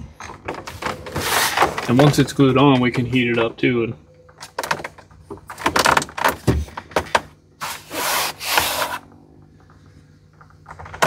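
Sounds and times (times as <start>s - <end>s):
plastic scraping against plastic: 7.6s - 9.1s.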